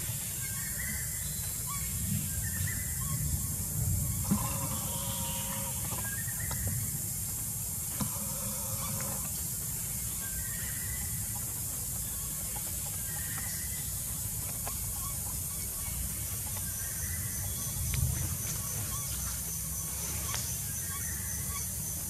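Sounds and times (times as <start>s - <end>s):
faint short pitched calls: 0.0s - 6.7s
low wind rumble: 0.0s - 22.0s
steady high hiss: 0.0s - 22.0s.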